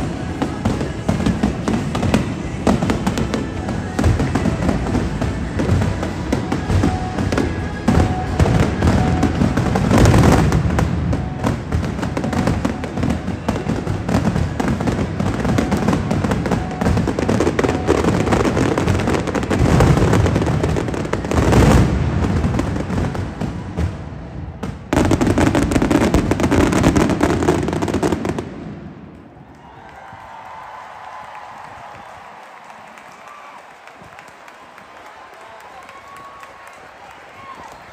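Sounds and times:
firework booms: 0:00.0 - 0:29.1
fireworks bursting and crackling: 0:00.0 - 0:37.9.

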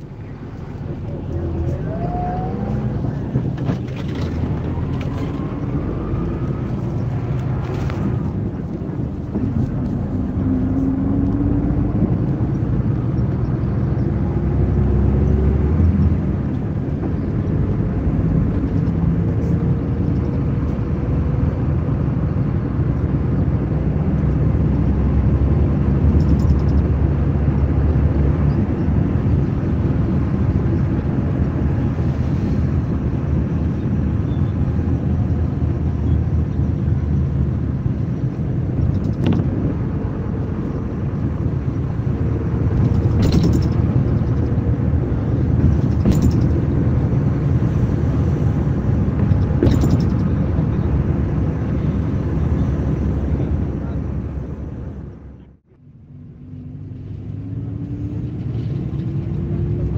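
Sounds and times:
bus diesel engine under load: 0:00.0 - 0:59.9.

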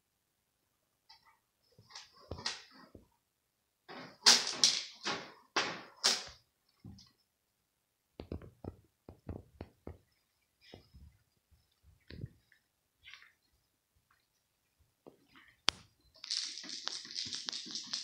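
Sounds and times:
light knocks and thumps: 0:08.2 - 0:11.2.

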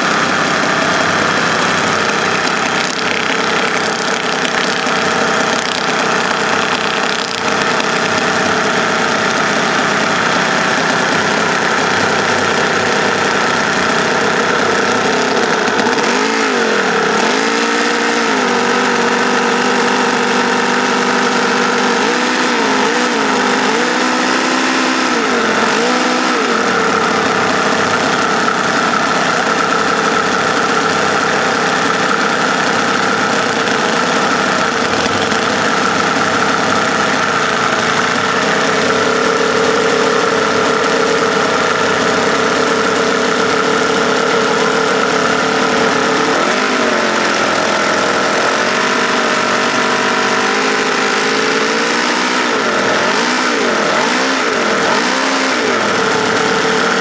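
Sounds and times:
model engine running: 0:00.0 - 0:57.0.

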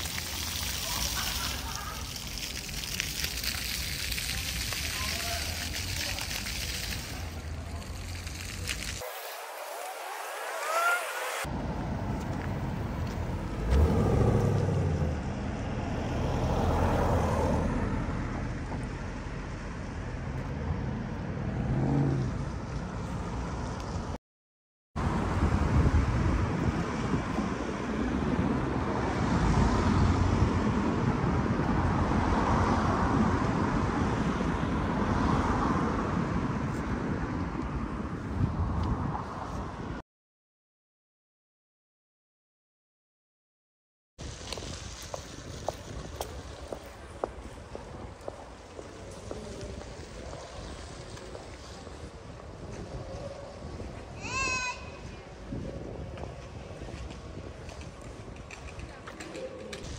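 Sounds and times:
cars driving past: 0:09.0 - 0:24.1, 0:25.0 - 0:39.7.

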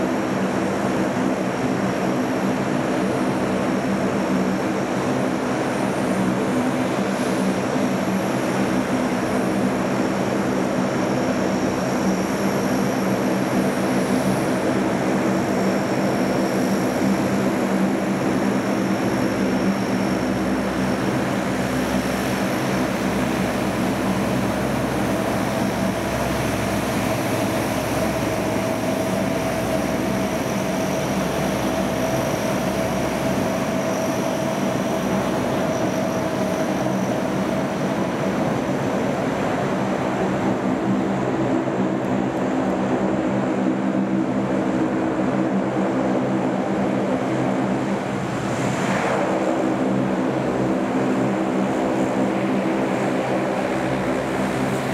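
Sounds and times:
turboprop aircraft engines droning: 0:00.0 - 0:54.9.

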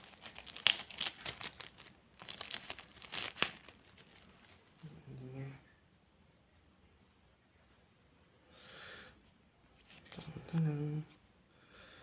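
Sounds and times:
plastic wrapper crinkling: 0:00.0 - 0:04.9.

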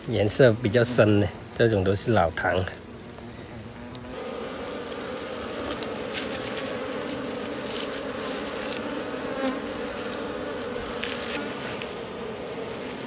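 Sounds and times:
honeybees buzzing: 0:00.0 - 0:13.0
comb and gloves clicking: 0:05.7 - 0:07.9, 0:08.5 - 0:08.9.

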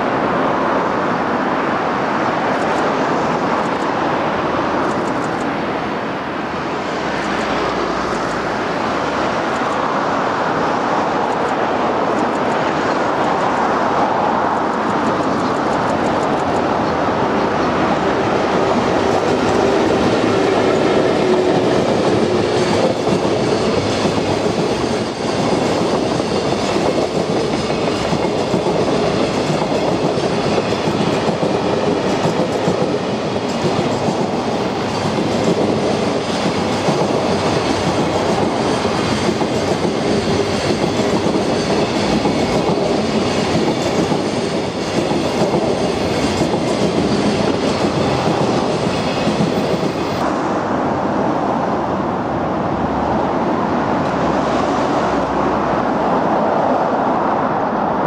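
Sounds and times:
freight train rumble: 0:00.0 - 0:58.0.

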